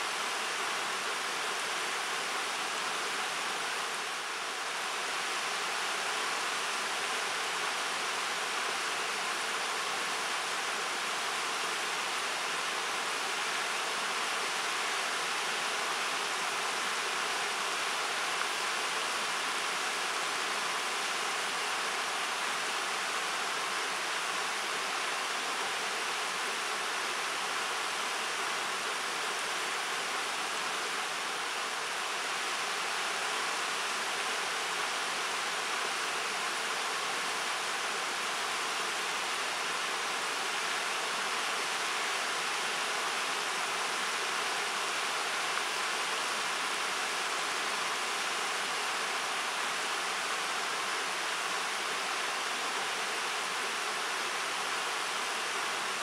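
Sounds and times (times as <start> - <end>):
river water rushing over rocks: 0.0 - 56.0.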